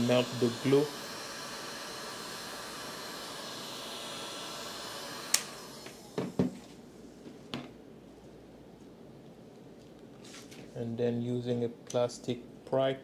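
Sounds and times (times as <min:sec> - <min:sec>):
heat gun blowing: 0:00.0 - 0:06.8
heat gun switch click: 0:05.3 - 0:06.0.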